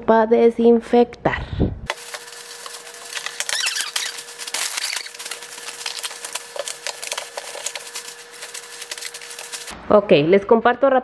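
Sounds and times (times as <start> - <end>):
plastic bags rustling: 1.9 - 9.7.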